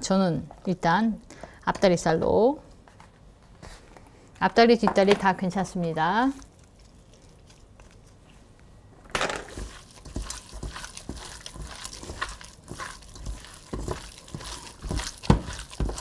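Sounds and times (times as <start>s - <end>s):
wet squishing of meat: 9.5s - 16.0s.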